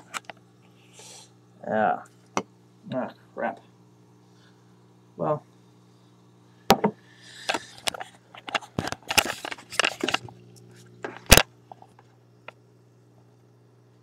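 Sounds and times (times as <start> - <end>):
steady low hum: 0.0 - 14.0
webcam handling knocks and rubbing: 7.8 - 10.3.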